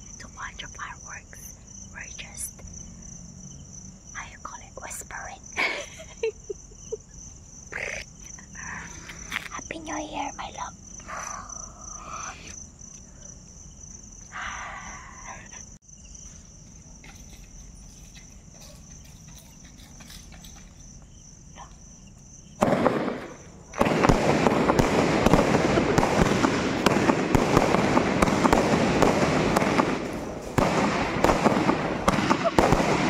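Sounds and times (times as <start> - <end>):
insect trill: 0.0 - 24.1
fireworks crackling and popping: 22.6 - 33.0
fireworks igniting with rush: 22.6 - 33.0.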